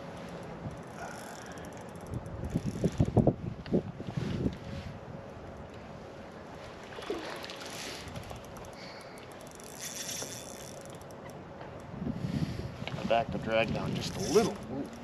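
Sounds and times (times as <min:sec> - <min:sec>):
wind: 0:00.0 - 0:15.0
fishing reel clicks: 0:00.3 - 0:03.2, 0:07.9 - 0:11.9
water noise: 0:05.7 - 0:11.3.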